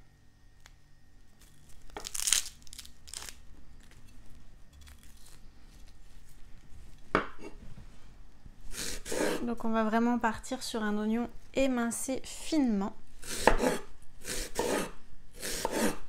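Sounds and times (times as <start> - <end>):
onion skin tearing: 1.4 - 4.0, 4.7 - 5.5.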